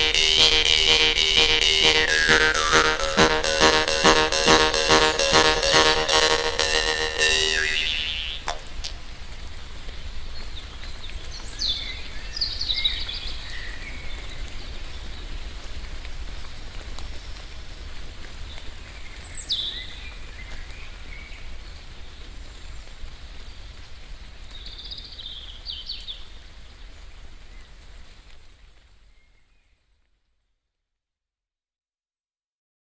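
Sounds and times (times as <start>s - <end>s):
light rain: 8.6s - 30.5s.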